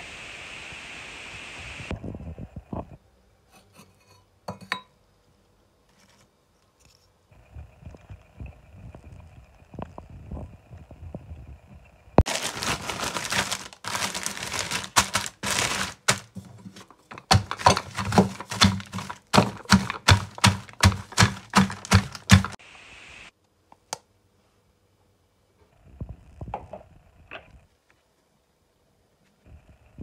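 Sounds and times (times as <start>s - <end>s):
biscuits crunching in plastic bag: 12.2s - 16.4s, 17.2s - 22.6s.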